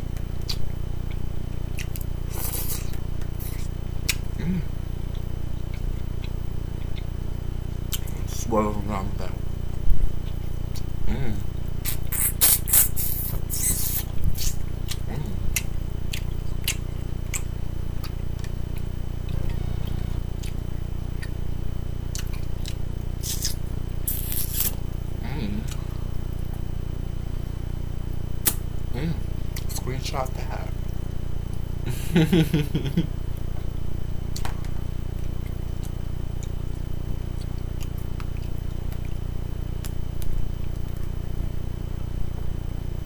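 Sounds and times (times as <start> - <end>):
steady low hum: 0.0 - 43.0
person chewing: 0.4 - 4.3, 5.1 - 7.1, 10.2 - 21.4, 22.1 - 24.8, 25.5 - 26.6.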